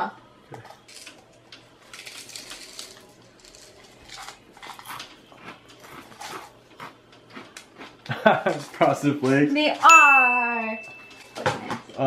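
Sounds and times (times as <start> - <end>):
cereal crunched while chewed: 1.8 - 8.6.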